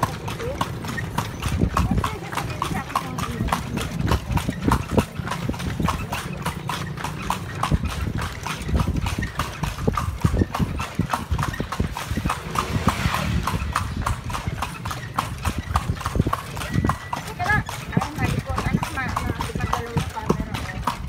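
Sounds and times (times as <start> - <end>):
horse hooves clip-clopping on pavement: 0.0 - 21.0
low rumble: 11.3 - 15.1.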